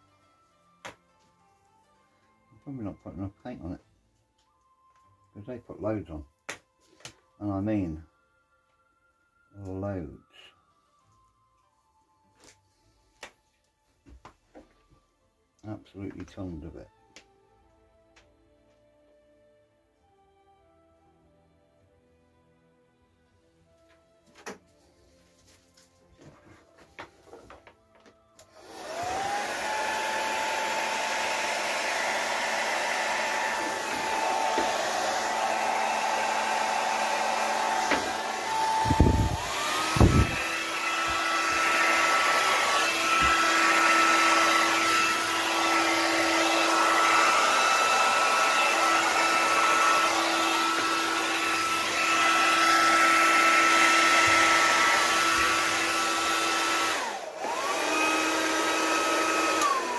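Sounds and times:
hair dryer blowing: 28.4 - 59.9.

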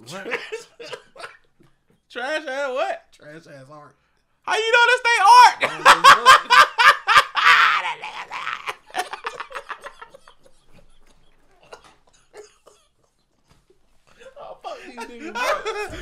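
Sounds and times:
men laughing: 0.1 - 1.6, 4.7 - 16.0.

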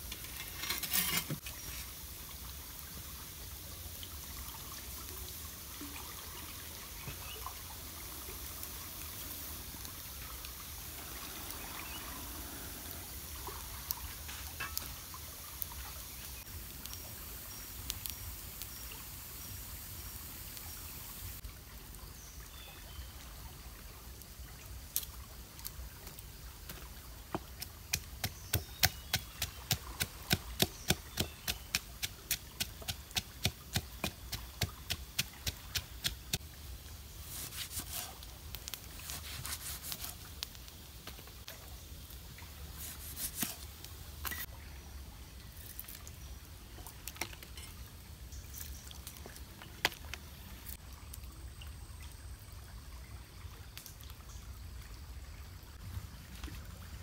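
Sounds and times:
river water running: 0.0 - 57.0.

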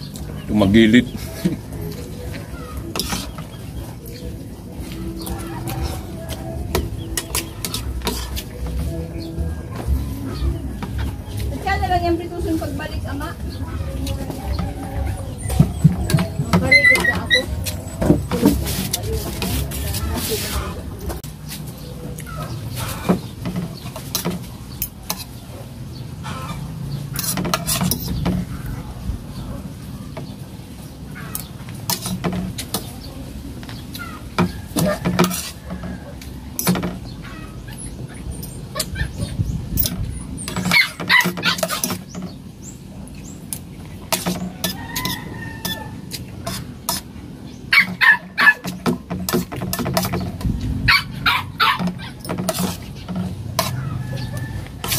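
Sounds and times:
chickens clucking: 0.0 - 54.9
cutlery clinking on a plate: 2.9 - 3.4, 34.4 - 37.0
animal calls: 13.5 - 18.0, 37.1 - 42.2, 47.6 - 48.8, 50.9 - 52.8.

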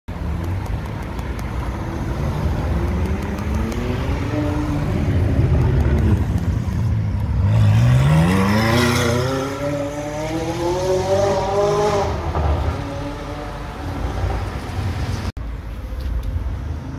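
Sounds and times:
car engines accelerating hard: 0.2 - 15.3.

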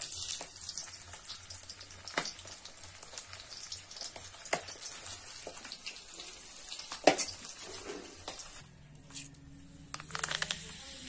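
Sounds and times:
fish sizzling in hot oil: 0.0 - 8.6.

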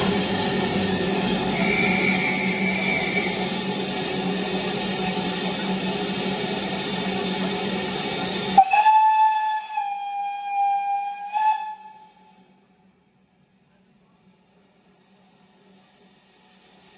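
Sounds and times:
steam hissing: 0.0 - 12.5, 14.5 - 16.9
steam whistle long note: 1.5 - 3.5, 8.6 - 12.5.

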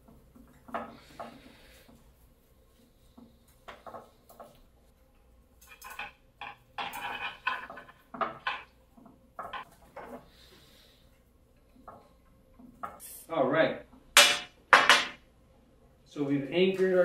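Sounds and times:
metal wire clicking and scraping: 3.1 - 10.3.

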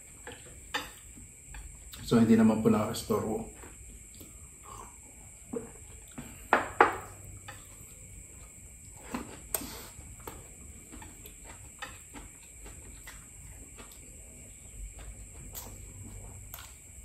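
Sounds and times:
chewing and swallowing: 4.0 - 6.5, 7.2 - 17.0.

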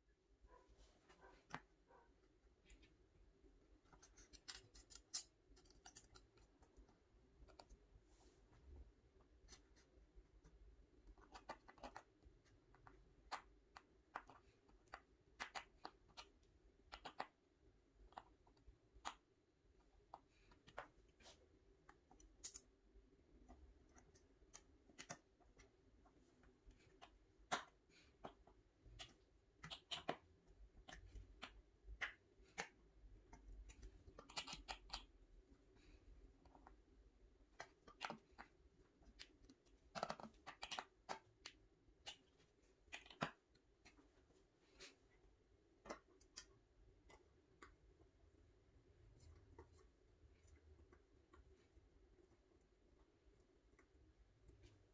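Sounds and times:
faint room hum: 0.0 - 54.9
clicks and scratches of hands fitting metal: 3.8 - 7.7.

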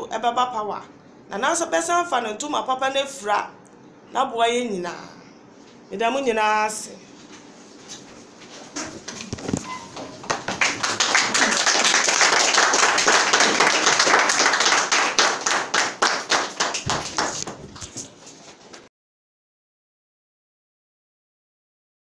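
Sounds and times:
people clapping: 9.1 - 18.9.

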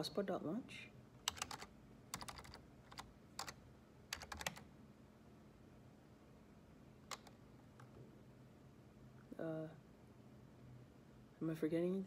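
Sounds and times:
faint keyboard keystrokes: 1.2 - 4.7, 7.1 - 8.0.

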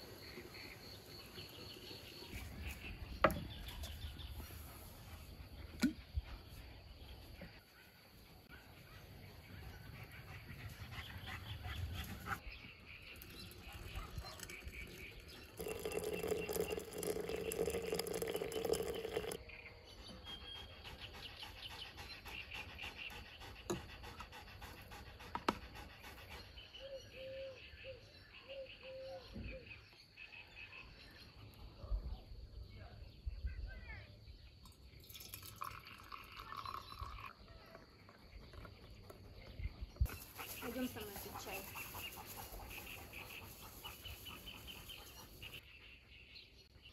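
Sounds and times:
hot water pouring into teapot: 14.4 - 19.4, 35.0 - 37.4.

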